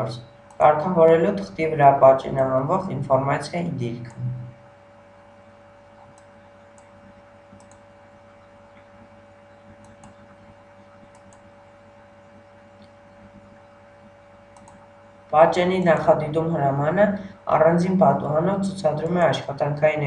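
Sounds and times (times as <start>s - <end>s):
low electrical hum: 0.0s - 20.0s
computer mouse clicks: 6.0s - 9.0s, 9.6s - 11.5s, 14.0s - 14.9s.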